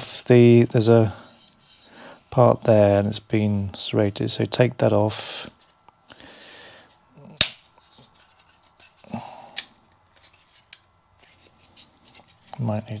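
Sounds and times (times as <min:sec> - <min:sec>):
wooden frame snapping: 0:07.4 - 0:07.6.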